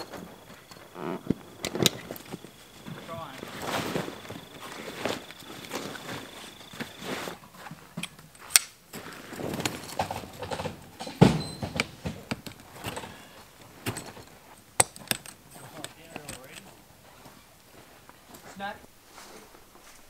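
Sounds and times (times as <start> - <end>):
heavy canvas rustling: 0.0 - 7.9
frame poles clicking: 13.9 - 16.8.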